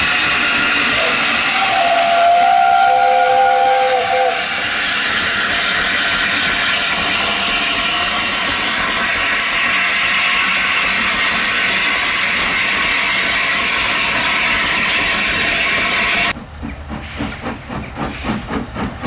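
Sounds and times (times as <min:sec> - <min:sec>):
steam locomotive whistle: 0:00.0 - 0:05.2
steam hissing: 0:00.0 - 0:19.0.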